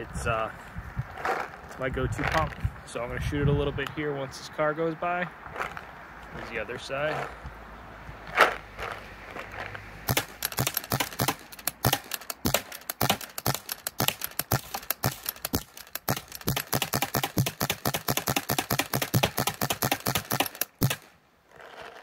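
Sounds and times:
paintball gun pumping and firing: 10.1 - 22.0.

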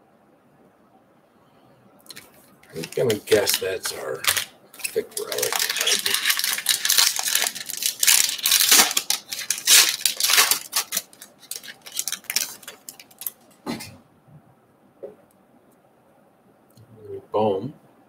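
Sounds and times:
foil wrapper crinkling and tearing: 2.1 - 13.4.

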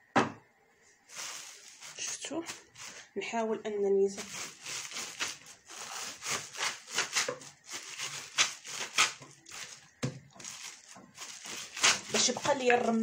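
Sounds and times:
rolling pin crushing seeds in bag: 4.2 - 13.0.

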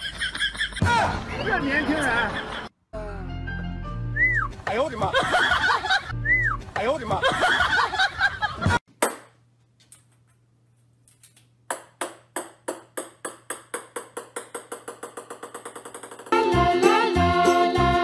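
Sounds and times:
ball bouncing on wooden floor: 11.7 - 16.3.

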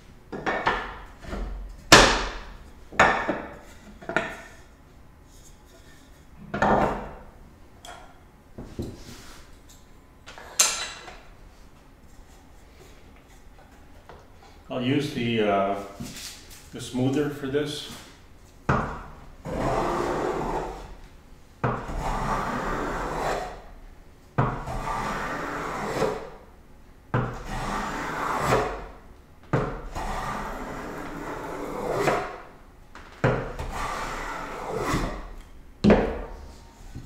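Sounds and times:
plane scraping along wood: 19.4 - 20.9, 21.8 - 23.6, 24.6 - 26.3, 27.4 - 28.9, 29.8 - 32.4, 33.6 - 35.3.

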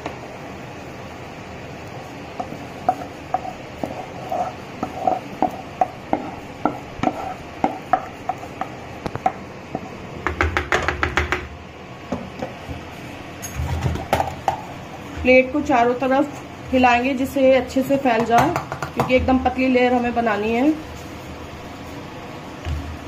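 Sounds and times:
steady low hum: 0.0 - 23.0
spatula scraping metal pan: 2.8 - 8.5.

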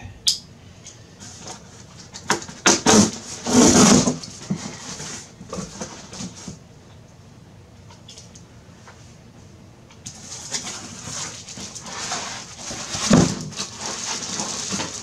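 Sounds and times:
cardboard scraping rustle: 1.2 - 6.6, 10.2 - 15.0.

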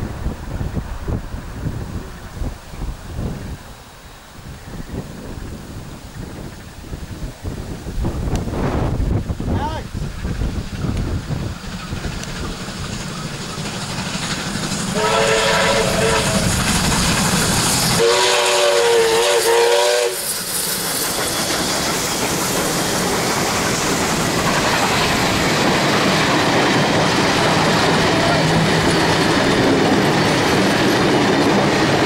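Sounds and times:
steam locomotives running: 0.0 - 32.0
train wheels on rails: 0.0 - 32.0
steam whistle: 14.9 - 16.7, 17.7 - 21.5.

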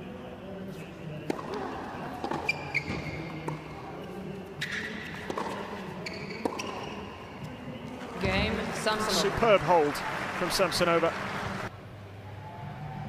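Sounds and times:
racket hitting tennis ball: 1.2 - 7.5
tennis ball bouncing: 1.2 - 8.6
shoe squeak: 2.1 - 7.6.

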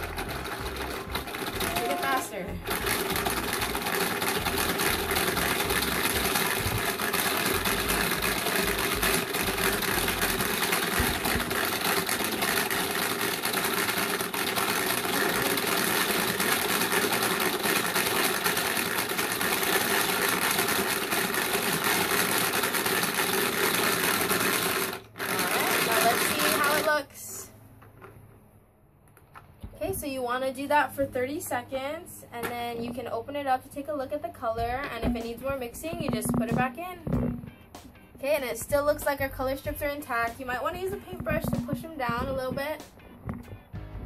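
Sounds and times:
paint mixer motor buzzing: 0.0 - 26.9, 35.8 - 37.6, 40.9 - 42.6.

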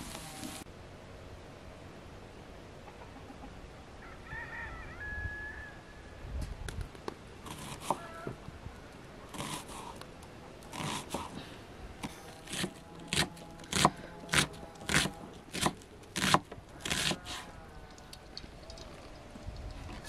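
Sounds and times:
knife chopping onion on wooden board: 9.4 - 9.9, 10.7 - 11.4, 12.0 - 17.4.

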